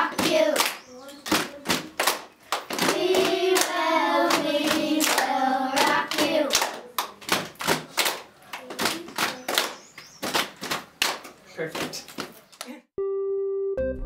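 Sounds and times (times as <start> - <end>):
group singing: 0.0 - 0.6, 2.8 - 6.7
rhythmic hand claps: 0.0 - 12.8.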